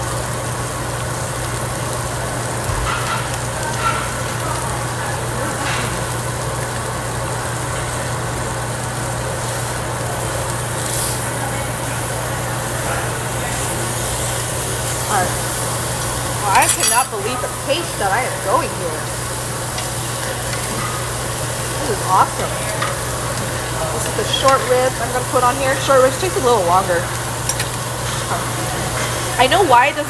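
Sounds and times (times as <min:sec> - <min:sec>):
meat sizzling on a grill: 0:00.0 - 0:30.0
exhaust hood humming: 0:06.0 - 0:30.0.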